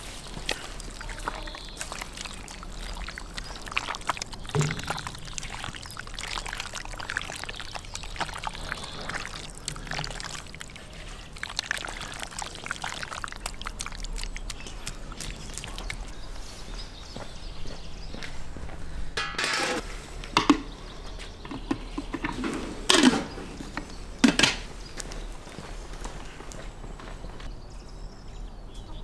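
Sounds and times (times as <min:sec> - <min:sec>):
wet squelching of meat kneaded: 0:00.0 - 0:17.1.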